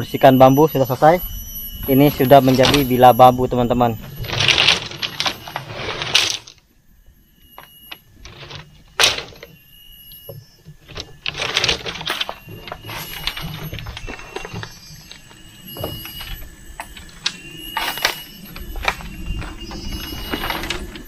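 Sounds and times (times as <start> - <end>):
bamboo slats scraping and rustling: 3.9 - 6.6, 8.2 - 9.5, 10.8 - 21.0.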